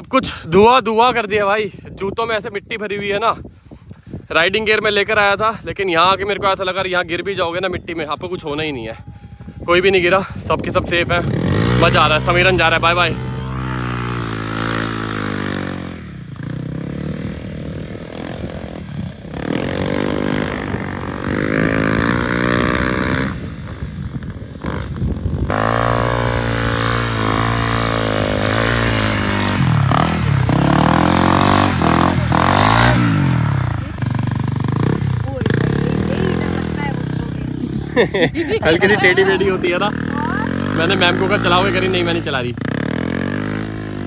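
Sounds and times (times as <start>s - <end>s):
dirt bike engine revving: 9.0s - 23.8s, 24.5s - 44.0s.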